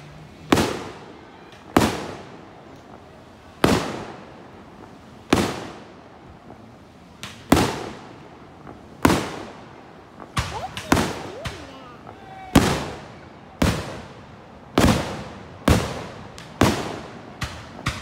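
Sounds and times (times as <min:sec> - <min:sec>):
fireworks banging: 0:00.0 - 0:18.0
small firework pop: 0:07.2 - 0:07.7, 0:15.7 - 0:18.0.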